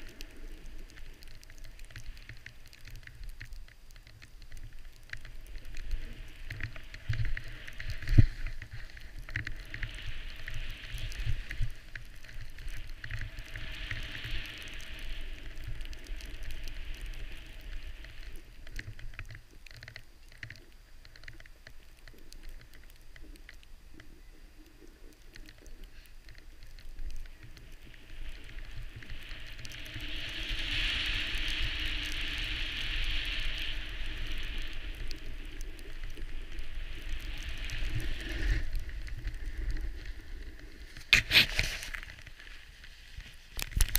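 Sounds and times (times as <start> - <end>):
snow hissing under skis: 5.9 - 11.9, 12.6 - 18.4, 28.0 - 43.6.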